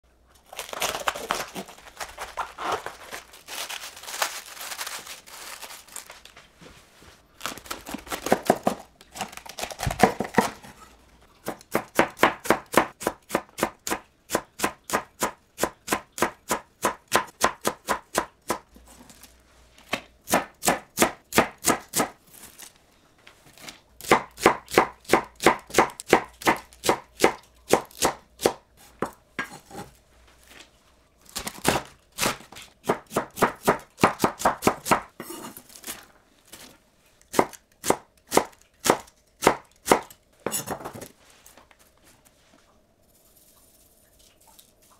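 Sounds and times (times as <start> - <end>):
knife cutting cabbage: 0.4 - 4.4, 7.4 - 10.8.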